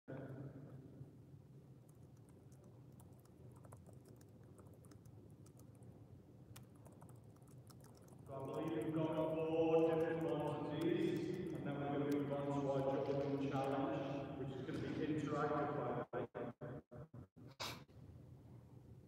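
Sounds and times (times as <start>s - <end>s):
faint clicks and taps: 6.5s - 9.0s
man speaking: 8.3s - 16.4s.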